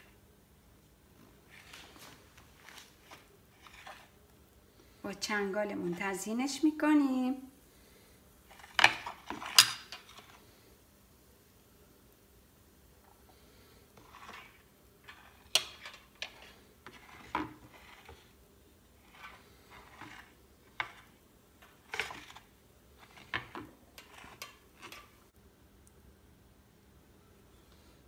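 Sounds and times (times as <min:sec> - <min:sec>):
fork scraping hummus on plate: 0:02.6 - 0:04.2, 0:14.0 - 0:18.4, 0:19.0 - 0:25.2.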